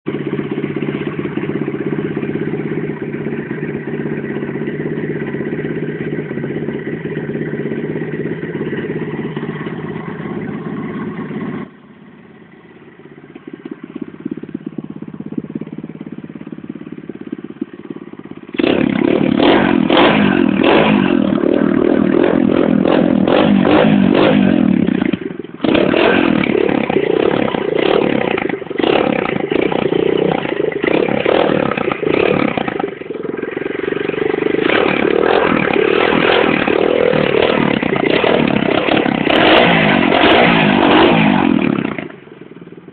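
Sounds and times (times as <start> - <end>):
dirt bike engine revving: 18.5 - 42.2.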